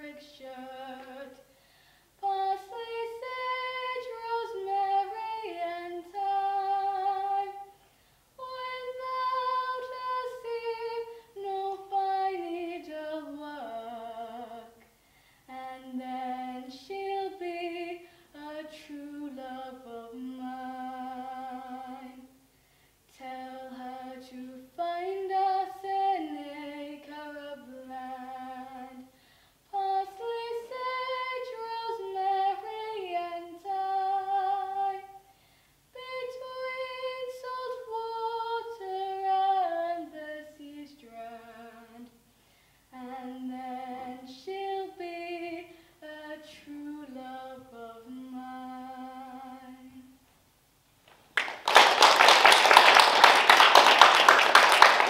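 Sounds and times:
girl singing unaccompanied: 0.0 - 22.4, 23.0 - 50.2
audience applause: 51.4 - 55.0.

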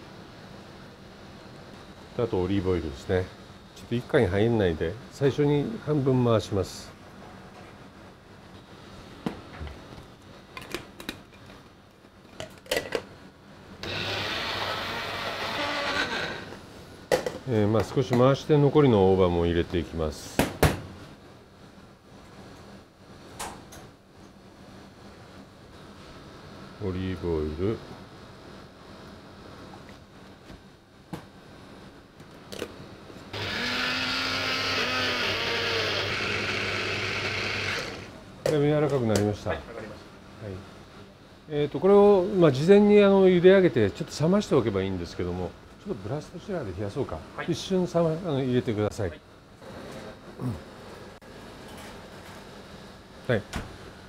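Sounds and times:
blender motor running: 13.8 - 16.5, 33.3 - 38.2.

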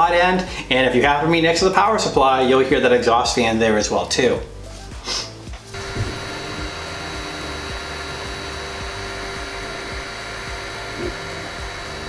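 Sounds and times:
cooling fan running: 5.7 - 12.0
stepper motor tones: 5.7 - 12.0.

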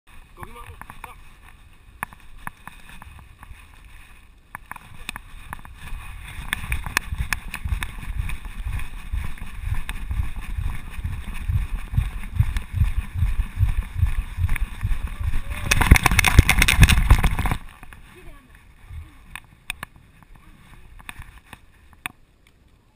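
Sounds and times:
wind rushing over microphone: 4.9 - 21.1
muffled rhythmic low thuds: 5.2 - 17.6, 18.8 - 19.6.

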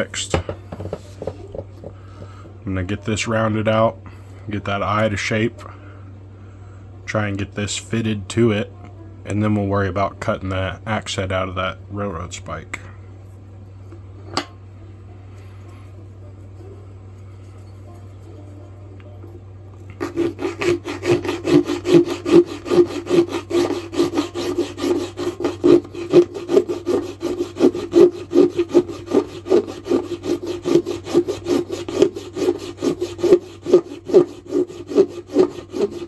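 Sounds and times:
hand rasp filing wood: 20.0 - 36.0.

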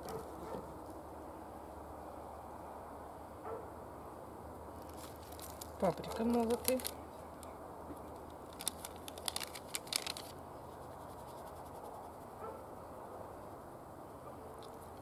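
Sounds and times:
faint outdoor background: 0.0 - 15.0
paper packet crinkling: 4.8 - 7.0, 8.4 - 10.4.

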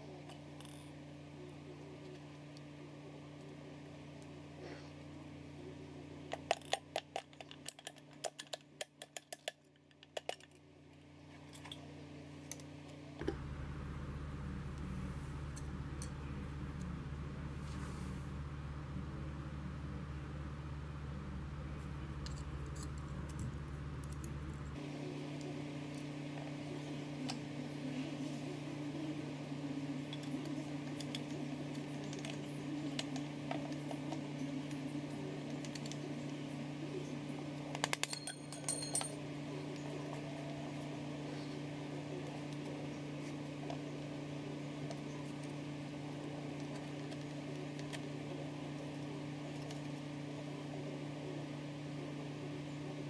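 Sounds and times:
steady low hum: 0.0 - 53.0
metal engine parts clinking: 37.8 - 39.2.

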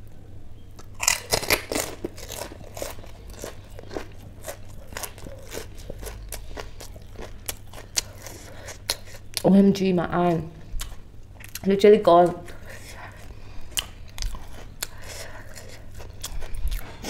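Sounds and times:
crisp shells crunching: 0.8 - 9.2.

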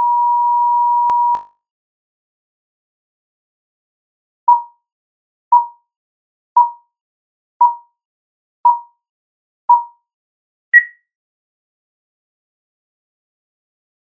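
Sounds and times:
higher-pitched beep: 0.0 - 1.4, 10.8 - 11.0
countdown beeps: 4.5 - 4.7, 6.6 - 6.8, 7.6 - 7.8, 8.7 - 8.9, 9.7 - 9.9, 10.8 - 11.0.

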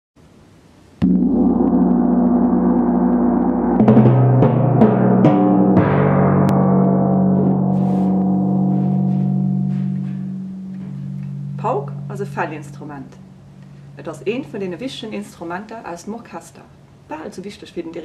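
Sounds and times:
gong struck and ringing: 1.0 - 15.0
timpani strikes: 1.0 - 15.0.

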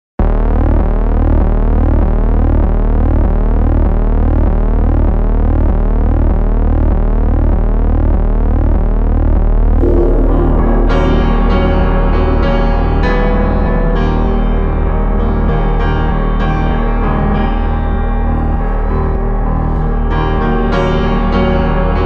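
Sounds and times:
pulsing low bass drone: 0.2 - 20.7
sweeping synthesizer tone: 9.8 - 13.5
piano: 9.8 - 22.0.

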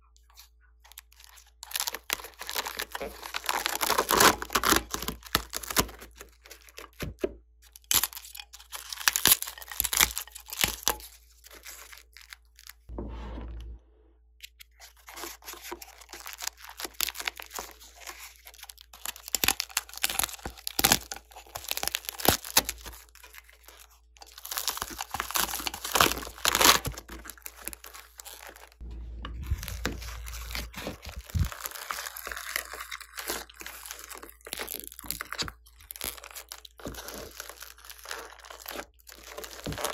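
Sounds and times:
sticky slime tearing: 15.1 - 23.6, 29.4 - 39.9
foam beads crunching: 15.9 - 28.8, 29.4 - 39.9.

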